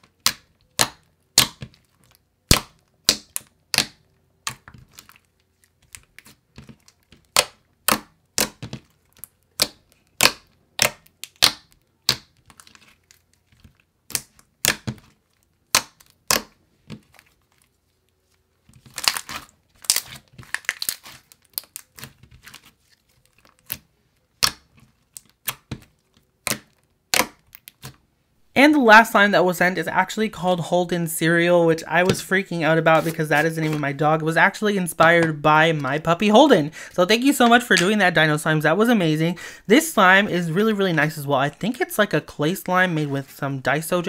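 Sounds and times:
slime crackling: 0.1 - 28.0.

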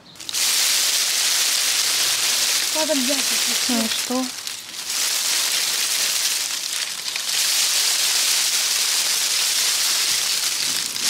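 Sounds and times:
dry leaves rattling on shaken branches: 0.0 - 11.0.

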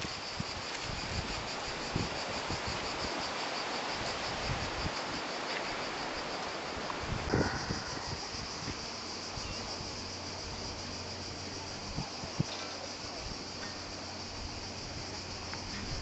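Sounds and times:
cicadas chirring: 0.0 - 16.0
faint low knocks: 7.2 - 8.8.

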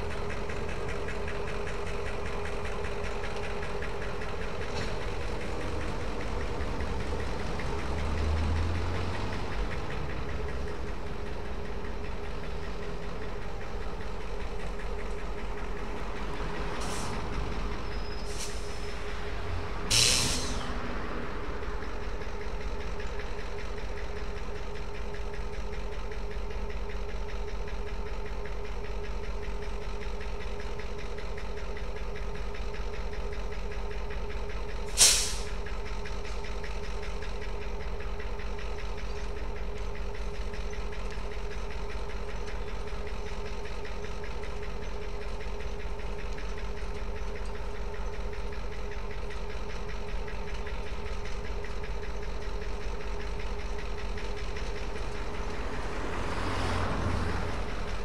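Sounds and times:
diesel locomotives idling: 0.0 - 58.0
sharp hiss: 19.9 - 20.6, 34.9 - 35.6.

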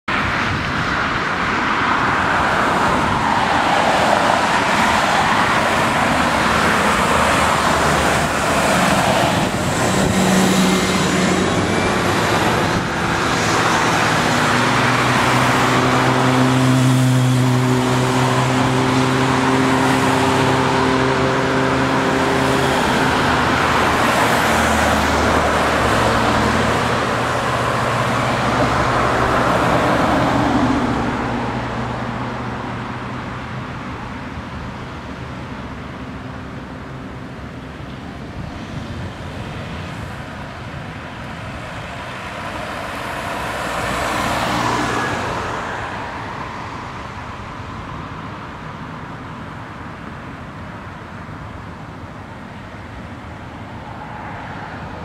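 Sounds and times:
cars passing: 0.1 - 55.0.

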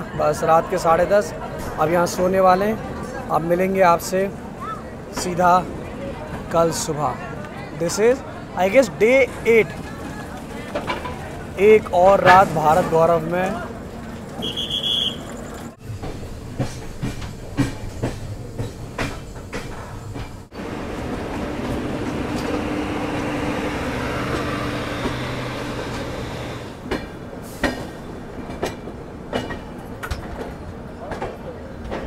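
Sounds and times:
train running noise with low hum: 0.0 - 32.0
train wheels clicking over rail joints: 9.1 - 32.0.

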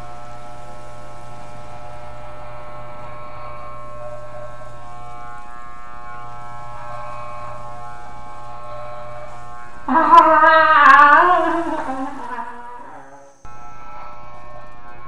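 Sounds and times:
electric hair clipper buzzing: 0.0 - 15.0
wavering vocal cry: 9.9 - 13.4.

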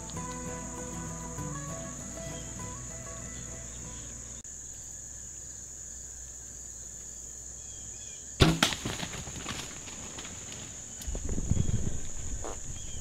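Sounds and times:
insects chirping: 0.0 - 13.0
deer crashing through dry leaves: 8.4 - 11.5.

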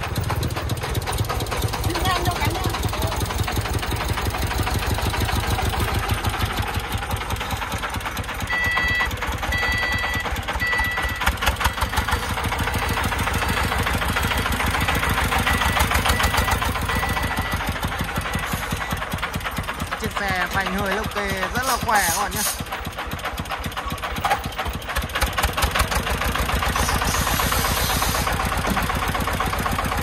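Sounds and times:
diesel truck engine pulsing: 0.0 - 30.0
short high beeps: 8.5 - 11.8.

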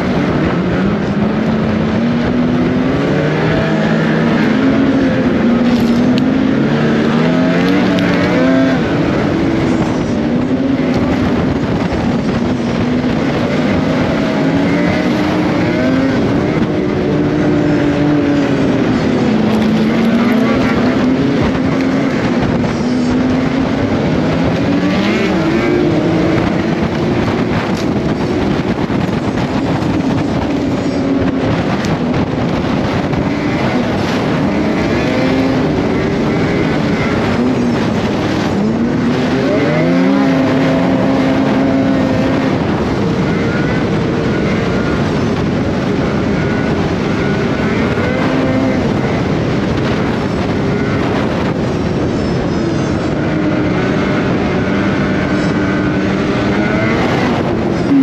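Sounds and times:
snowmobile engine revving: 0.0 - 58.0
steady noisy rush: 0.0 - 58.0.

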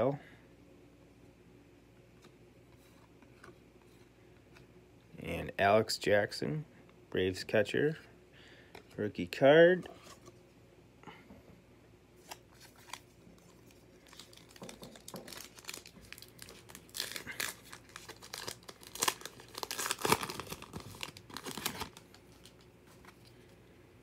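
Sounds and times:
wrapper crinkling and tearing: 12.2 - 23.3.

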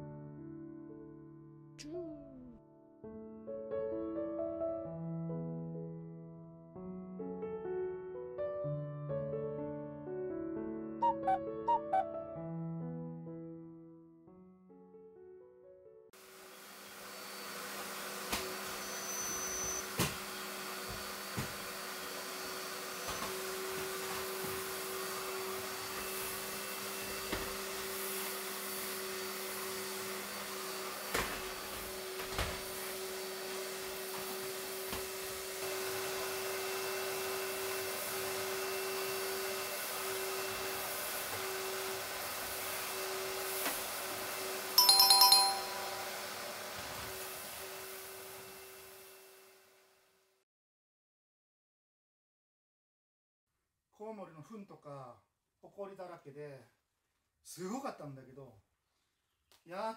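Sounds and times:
vacuum cleaner humming: 16.2 - 49.8
loud ringing tone: 44.8 - 46.4.

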